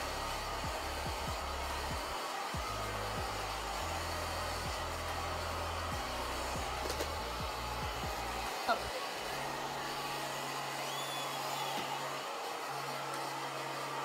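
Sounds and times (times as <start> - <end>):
hair dryer running: 0.0 - 14.0.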